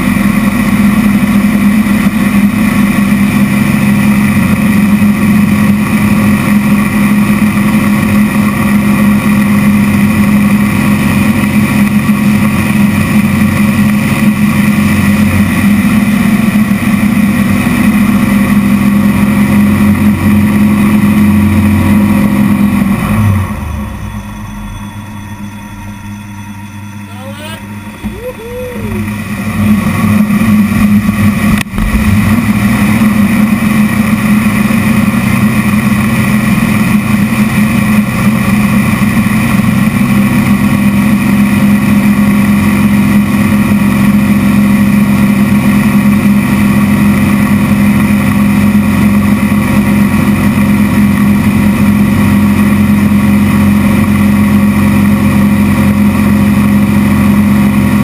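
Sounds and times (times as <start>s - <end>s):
plane engine and propeller droning: 0.0s - 58.0s.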